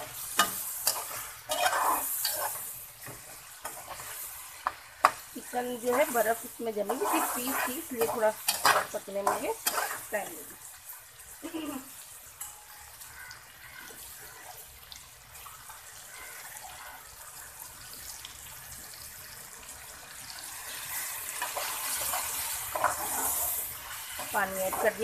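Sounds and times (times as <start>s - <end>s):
metal spatula stirring: 0.0s - 10.4s, 21.3s - 25.0s
food sizzling and bubbling in pot: 0.0s - 25.0s.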